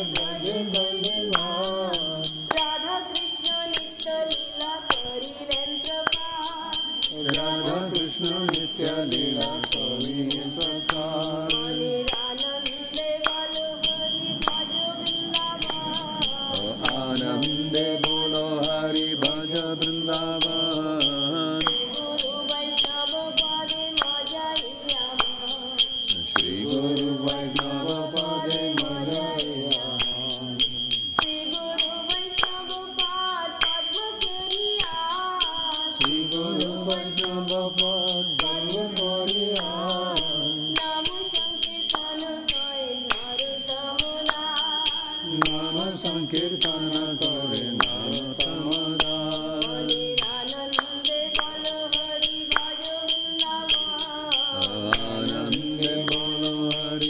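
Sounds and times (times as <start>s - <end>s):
small hand cymbals clinking: 0.0s - 57.0s
woman singing: 0.0s - 57.0s.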